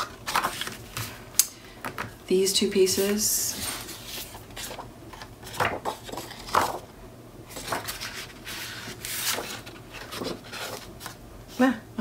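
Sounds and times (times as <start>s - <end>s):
paper rustling: 0.0s - 1.2s, 2.9s - 6.9s, 7.5s - 11.2s.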